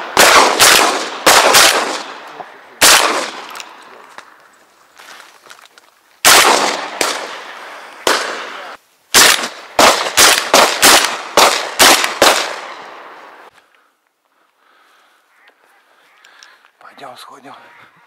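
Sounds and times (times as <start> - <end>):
shotgun shots echoing: 0.0 - 3.8, 6.2 - 13.2.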